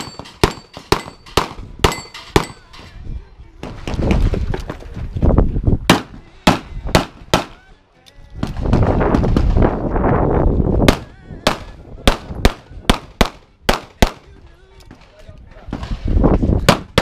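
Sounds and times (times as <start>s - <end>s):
pistol shots: 5.9s - 7.6s, 10.9s - 14.3s.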